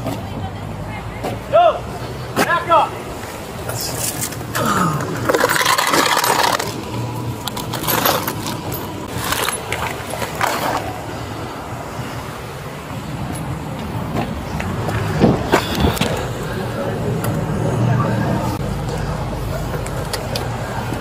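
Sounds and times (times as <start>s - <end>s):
rustling and scraping handling noise: 3.2s - 11.1s.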